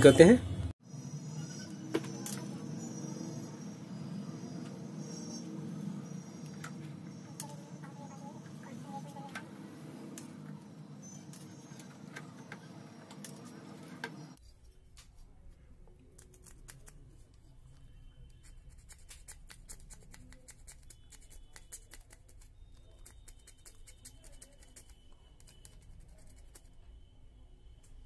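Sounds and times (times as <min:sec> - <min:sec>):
metal blade scraping circuit board: 0:01.1 - 0:07.8.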